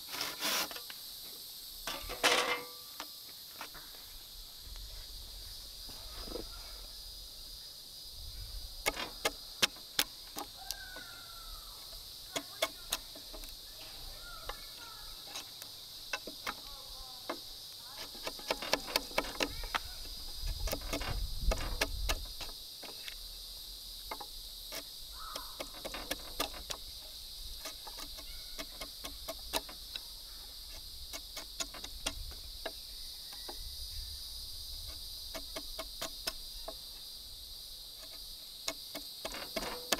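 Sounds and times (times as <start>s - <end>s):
high-pitched insect chirring: 0.8s - 39.9s
sharp clicks and knocks: 16.1s - 16.7s, 18.0s - 23.2s, 24.1s - 27.0s, 27.6s - 30.0s, 30.7s - 32.8s, 38.0s - 39.9s.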